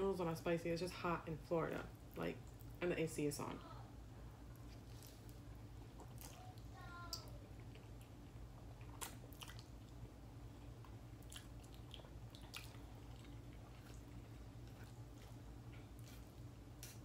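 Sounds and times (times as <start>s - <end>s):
steady low hum: 0.0s - 17.0s
chewing and slurping noodles: 10.8s - 17.0s.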